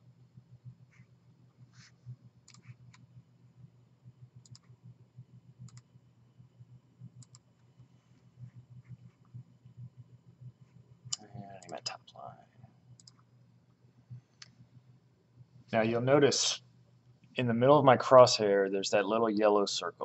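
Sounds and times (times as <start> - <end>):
steady low hum: 0.0 - 20.0
computer mouse clicks: 2.4 - 3.1, 4.4 - 4.8, 5.6 - 5.9, 7.1 - 7.8, 12.9 - 13.3.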